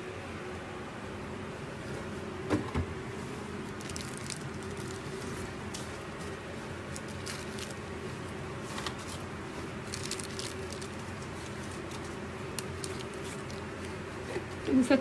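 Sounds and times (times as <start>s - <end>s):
steady low hum: 0.0s - 15.0s
plastic bags crinkling: 3.7s - 7.9s, 8.6s - 14.0s.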